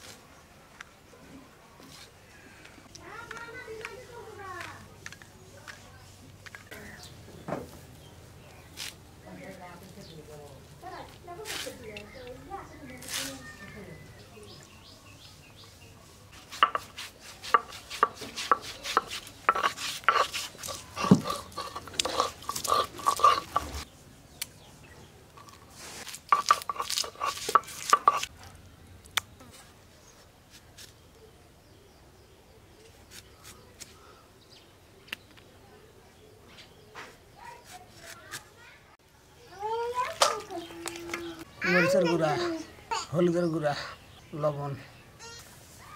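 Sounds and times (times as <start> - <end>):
stone roller knocking on stone slab: 16.6 - 23.8.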